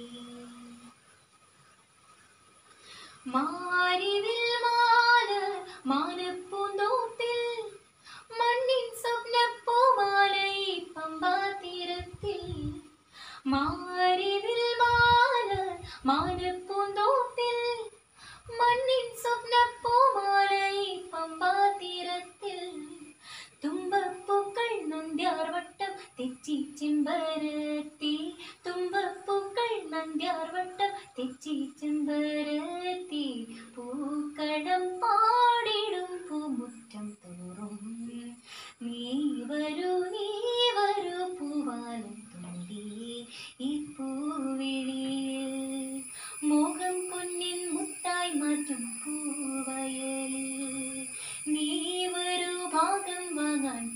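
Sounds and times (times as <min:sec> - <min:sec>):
girl singing: 0:00.0 - 0:00.9, 0:03.3 - 0:53.9.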